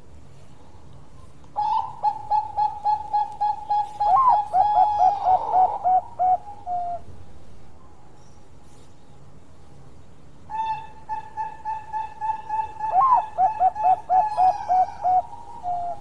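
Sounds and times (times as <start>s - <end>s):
dove cooing song: 1.6s - 7.1s, 10.5s - 16.0s.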